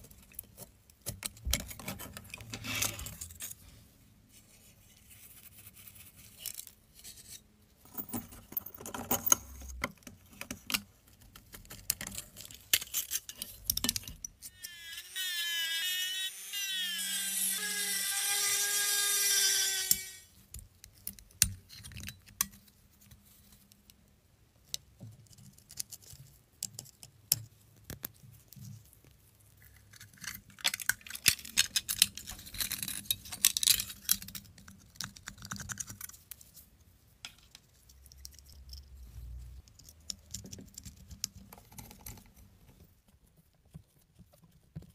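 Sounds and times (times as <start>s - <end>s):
rotary tool drilling into metal: 14.5s - 20.3s.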